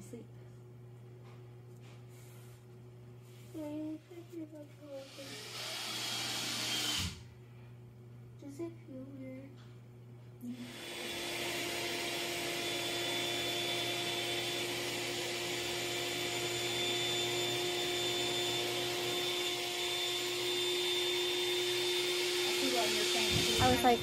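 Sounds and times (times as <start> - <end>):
small electric motor whirring: 4.9 - 7.2, 10.5 - 24.0.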